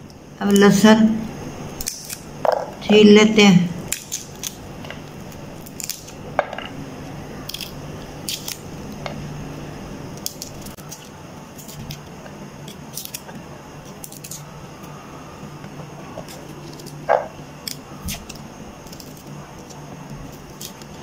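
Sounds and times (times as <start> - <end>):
knife scraping garlic cloves: 1.7 - 2.6, 3.8 - 6.2, 7.4 - 9.2, 10.1 - 15.0, 16.1 - 21.0.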